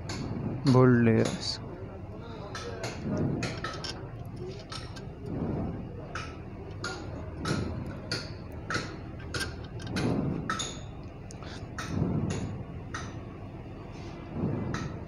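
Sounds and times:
metal parts clinking: 0:03.4 - 0:05.2, 0:08.7 - 0:11.7.

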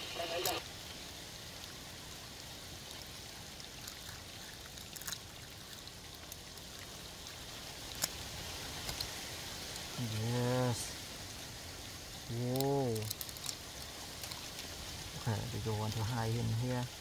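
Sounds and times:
faint steady hiss: 0:00.0 - 0:17.0.

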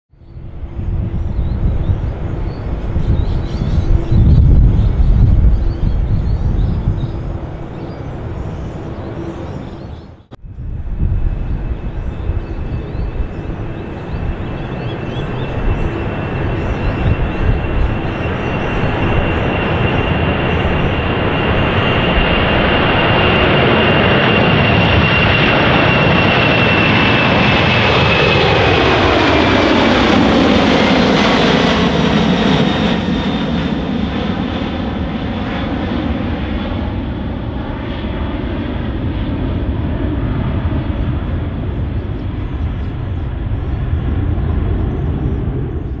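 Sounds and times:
jet taking off: 0:00.3 - 0:46.0.

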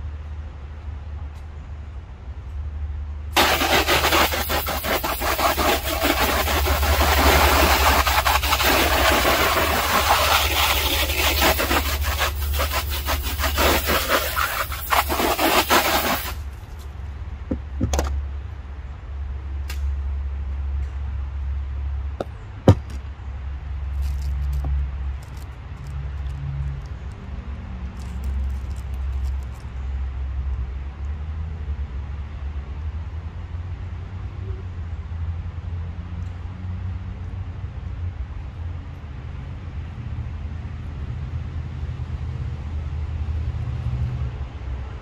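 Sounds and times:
hose spraying water: 0:03.4 - 0:16.8
sharp knock: 0:22.2 - 0:23.0.

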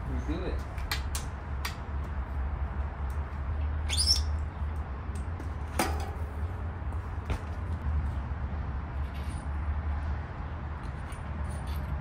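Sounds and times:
metal bike parts clinking: 0:05.1 - 0:06.5, 0:09.0 - 0:09.6, 0:10.8 - 0:12.0.

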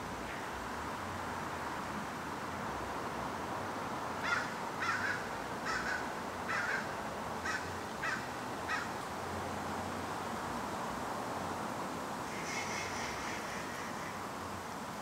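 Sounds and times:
crow cawing: 0:04.2 - 0:08.9, 0:12.3 - 0:14.2.

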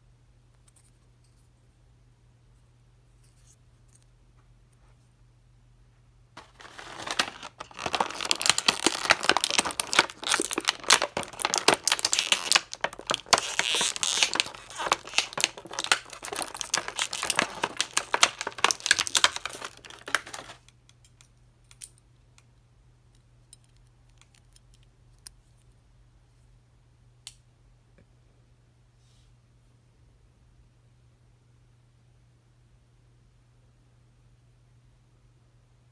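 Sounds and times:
plastic bag crinkling: 0:06.4 - 0:20.6.

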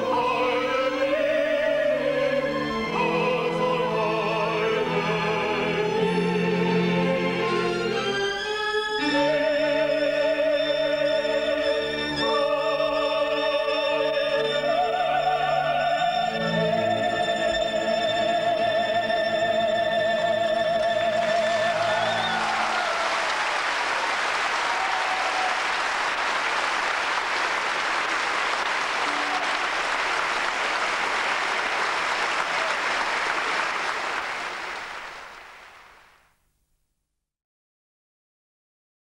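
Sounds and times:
operatic singer holding high note: 0:20.6 - 0:23.4
audience applause: 0:21.2 - 0:36.2.

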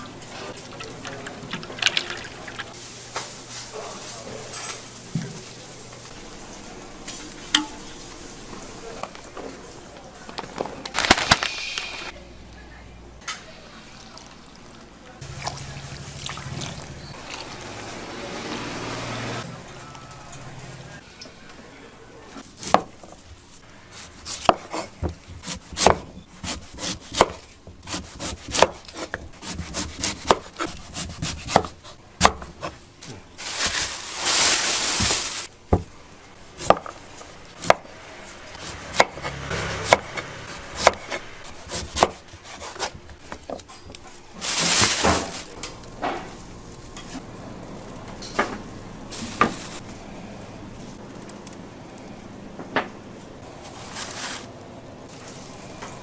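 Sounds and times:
knife chopping on wooden board: 0:24.3 - 0:32.7, 0:36.6 - 0:36.9, 0:38.6 - 0:43.0.

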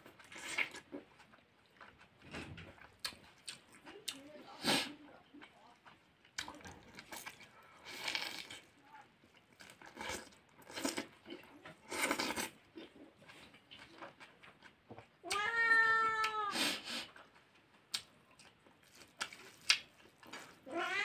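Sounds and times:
chewing and crunching: 0:00.0 - 0:15.4, 0:17.0 - 0:20.7
cat meowing: 0:15.2 - 0:16.5, 0:20.6 - 0:21.0.

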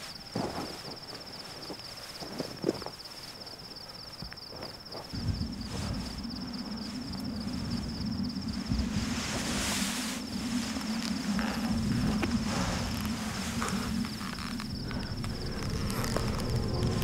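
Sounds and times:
insects trilling: 0:00.0 - 0:17.0
low steady drone: 0:05.2 - 0:17.0.

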